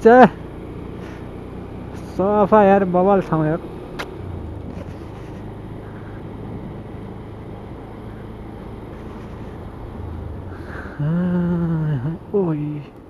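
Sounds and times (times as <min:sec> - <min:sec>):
motorcycle engine hum: 0:00.0 - 0:13.0
wind rushing over microphone: 0:04.2 - 0:11.7.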